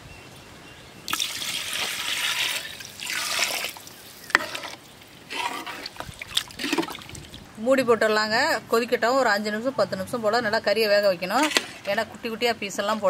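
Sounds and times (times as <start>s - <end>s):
water pouring into pot: 1.1s - 7.2s.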